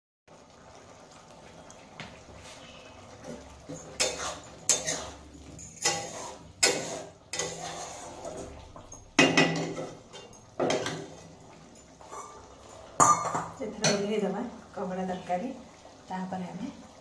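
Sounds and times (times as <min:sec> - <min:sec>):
curry simmering: 0:00.3 - 0:17.0
spatula clinking on metal pot: 0:03.7 - 0:07.9, 0:08.8 - 0:11.1.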